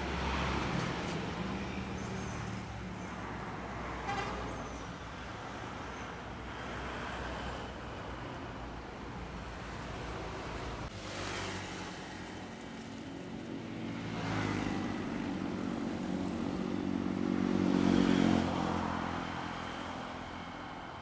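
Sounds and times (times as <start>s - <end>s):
trucks passing: 0.0s - 8.3s, 9.0s - 21.0s
buses passing: 0.0s - 21.0s
vehicle engine hum passing: 10.2s - 21.0s
motorcycles passing: 10.9s - 20.6s.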